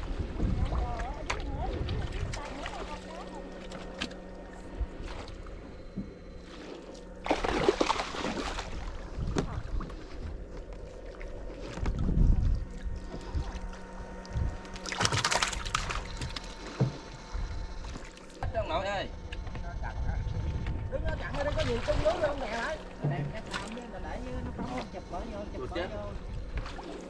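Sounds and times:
water splashing around boat: 0.0 - 19.8, 20.4 - 27.0
steady low hum: 0.0 - 27.0
heavy low thump: 22.9 - 24.9.

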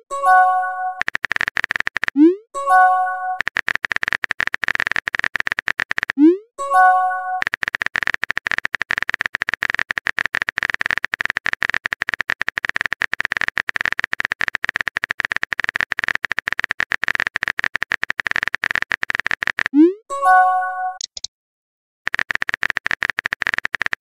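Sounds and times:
rapid typing clicks: 1.0 - 2.2, 3.3 - 6.4, 7.4 - 19.8, 22.1 - 24.0
rising pop and chime: 2.6 - 3.4, 6.6 - 7.4.

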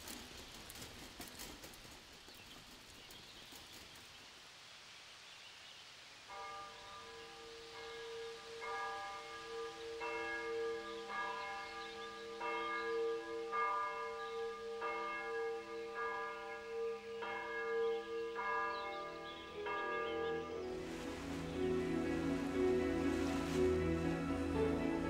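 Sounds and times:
church bells ringing: 6.3 - 25.0.

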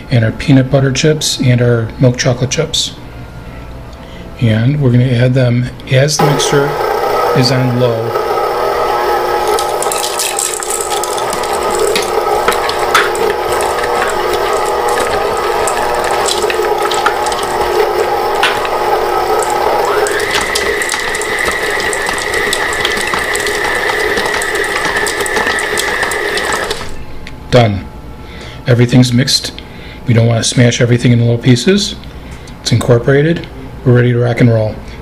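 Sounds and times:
stand mixer motor whine: 6.2 - 27.0.

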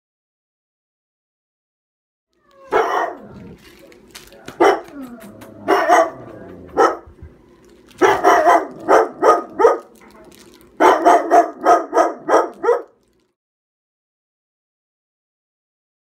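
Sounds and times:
dog barking: 2.6 - 3.6, 4.5 - 7.2, 8.0 - 10.0, 10.8 - 13.0.

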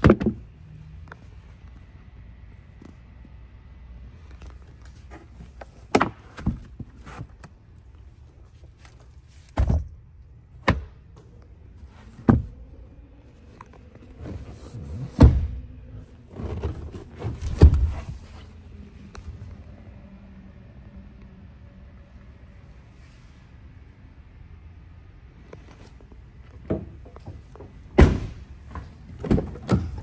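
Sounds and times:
load floor and seat thumps: 26.7 - 30.0.

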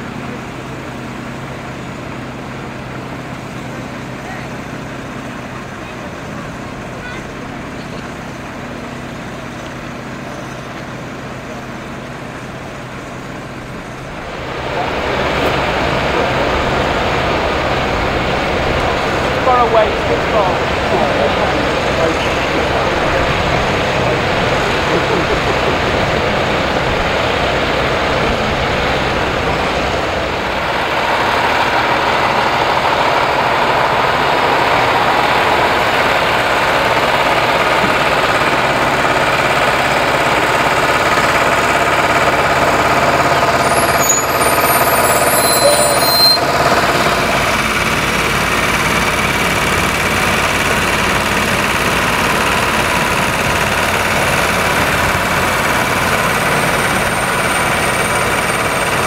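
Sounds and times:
diesel truck engines running: 0.0 - 59.0.

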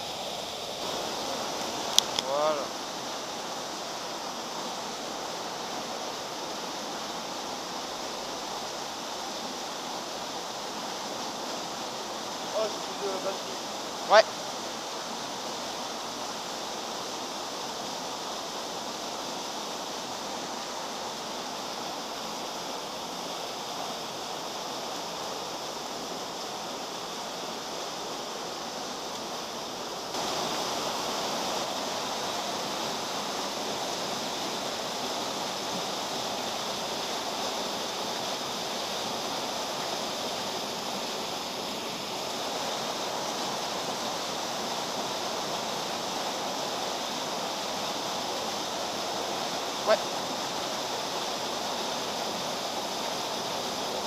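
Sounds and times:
stream water flowing: 0.0 - 54.0.

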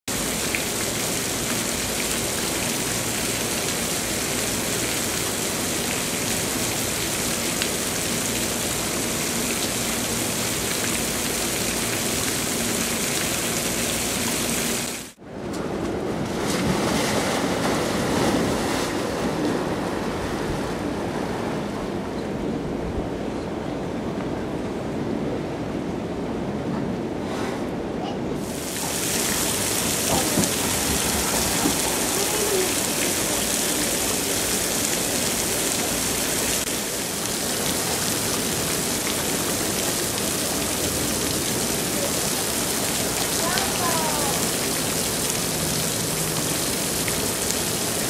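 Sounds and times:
fountain jets spraying: 0.1 - 15.2, 28.4 - 48.0
pool water sloshing and splashing: 0.1 - 22.0, 28.4 - 48.0.

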